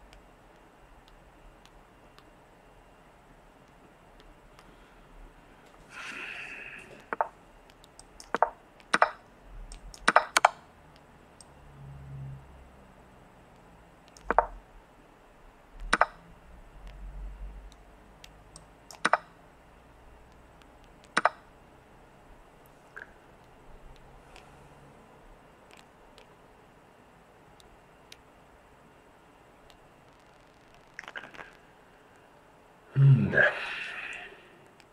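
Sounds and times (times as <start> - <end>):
sharp computer chess move clicks: 6.9 - 11.5, 14.0 - 14.6, 15.8 - 16.2, 17.7 - 19.4, 20.3 - 21.5.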